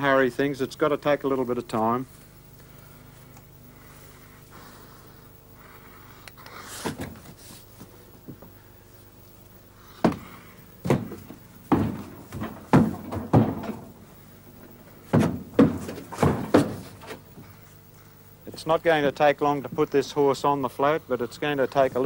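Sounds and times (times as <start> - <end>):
horse hooves on wooden ramp: 10.0 - 14.2, 15.0 - 17.3.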